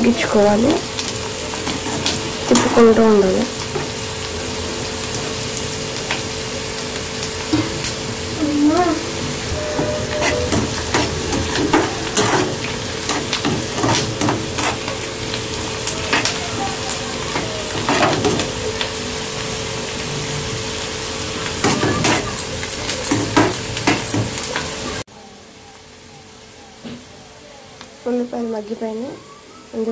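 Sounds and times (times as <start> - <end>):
onions sizzling in hot oil: 0.0 - 29.9
metal spatula scraping pan: 9.2 - 15.1.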